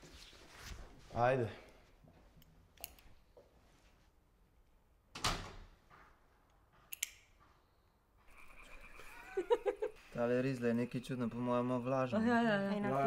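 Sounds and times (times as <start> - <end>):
door shutting with a thud: 5.1 - 5.7.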